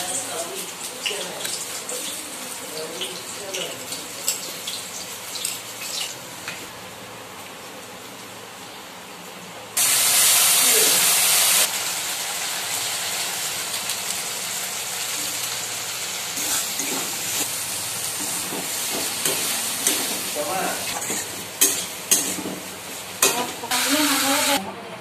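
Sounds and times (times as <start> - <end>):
chickpeas sizzling in a pan: 0.0 - 8.7, 9.8 - 24.6
metal spatula clinking on pan: 21.0 - 22.5.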